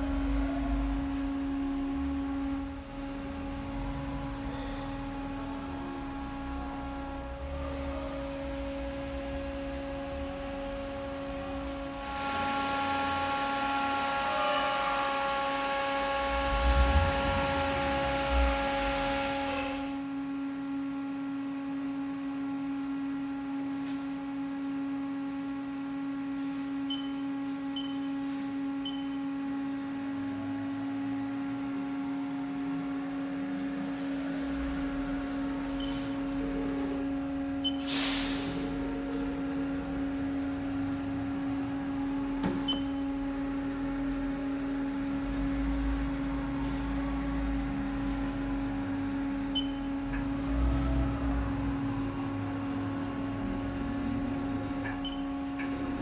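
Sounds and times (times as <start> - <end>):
machine electrical hum: 0.0 - 56.0
faint short beeps: 26.9 - 28.2, 28.8 - 29.2, 35.8 - 36.2, 49.5 - 49.9, 55.0 - 55.3.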